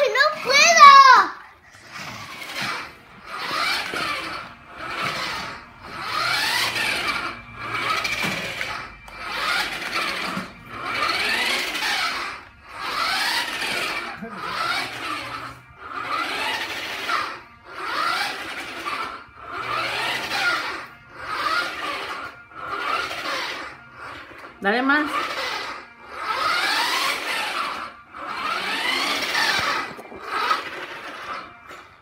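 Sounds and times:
toy car electric motor whining: 0.0s - 32.0s.

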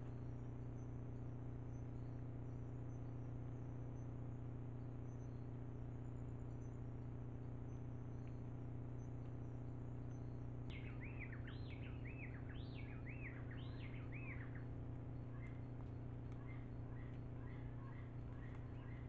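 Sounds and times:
low electrical hum: 0.0s - 19.0s
bird chirping: 9.4s - 19.0s.

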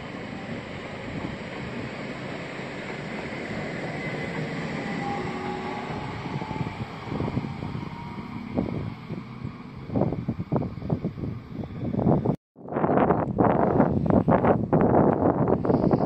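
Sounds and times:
train wheels rumbling on rails: 0.0s - 12.4s.

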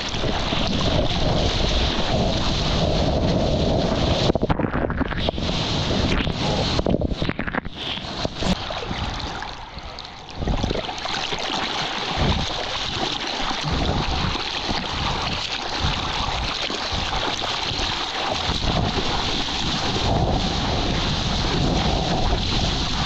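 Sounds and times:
sea water churning and splashing: 0.0s - 23.0s.

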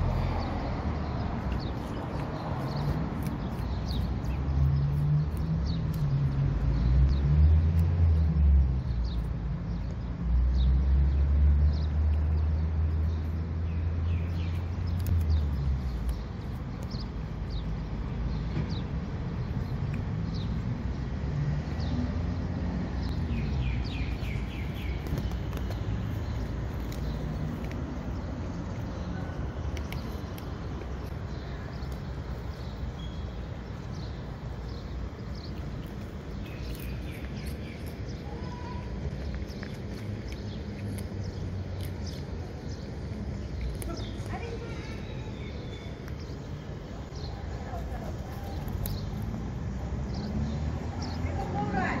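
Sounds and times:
small birds chirping: 0.0s - 52.0s
cat crunching dried fish: 1.4s - 6.4s, 24.1s - 45.1s, 47.8s - 49.3s.

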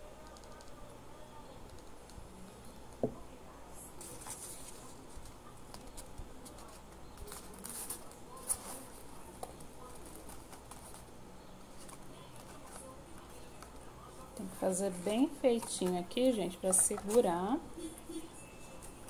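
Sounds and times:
paper and cardboard crinkling: 4.0s - 11.1s, 11.7s - 13.8s, 14.4s - 17.6s.

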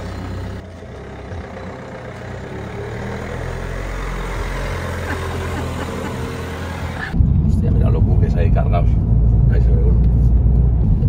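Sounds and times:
vehicle engine rumble and road noise: 0.0s - 11.0s.

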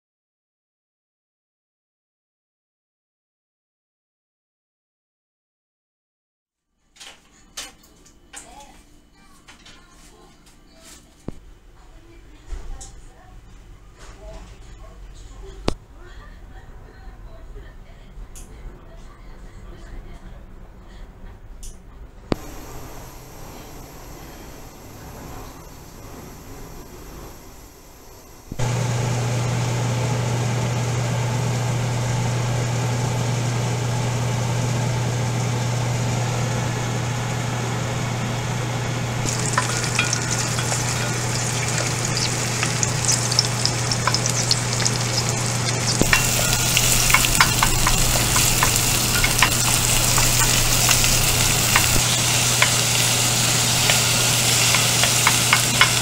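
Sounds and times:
steady low hum: 22.4s - 56.0s
vegetables sizzling in hot oil: 22.4s - 56.0s
wooden spoon stirring: 39.3s - 56.0s.

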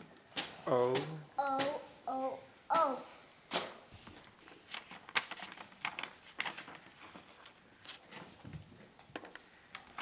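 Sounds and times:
paper page turning: 3.5s - 10.0s.

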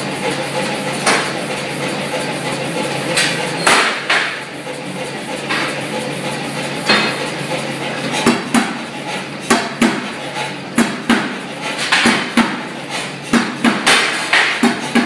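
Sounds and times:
power hammer striking hot steel: 1.0s - 1.4s, 3.1s - 4.5s, 6.8s - 7.2s, 10.8s - 15.0s.

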